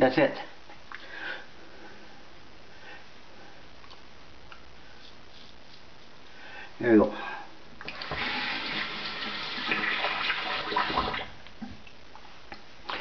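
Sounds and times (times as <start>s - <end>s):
water running from a tap: 7.9s - 11.3s.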